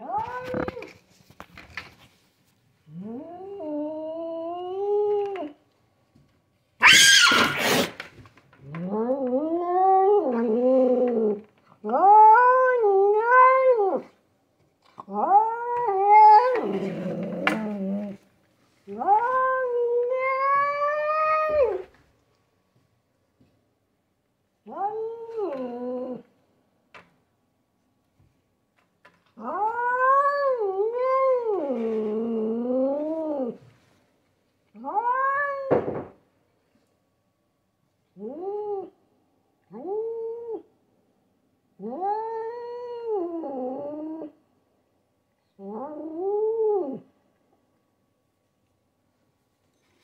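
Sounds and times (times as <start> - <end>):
cat yowling: 6.8 - 7.9, 11.8 - 14.1, 15.1 - 16.9, 29.4 - 31.7, 34.8 - 35.8
cat growling: 8.6 - 14.2, 14.9 - 18.3, 41.8 - 44.4, 45.6 - 47.1.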